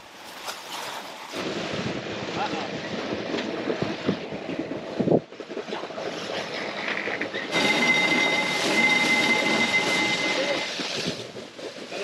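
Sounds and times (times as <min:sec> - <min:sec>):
wind and water rushing: 0:00.0 - 0:12.0
steady high whine: 0:07.5 - 0:11.2.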